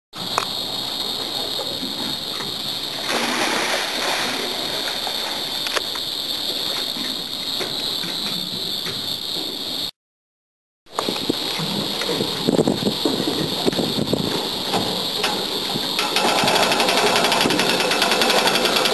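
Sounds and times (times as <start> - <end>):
steady high-pitched hum: 0.2 - 9.9, 10.9 - 18.9
splash into water: 2.9 - 5.7.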